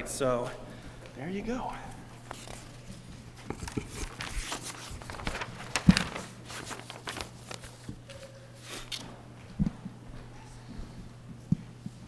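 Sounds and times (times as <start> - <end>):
rustling handling noises: 0.4 - 9.0.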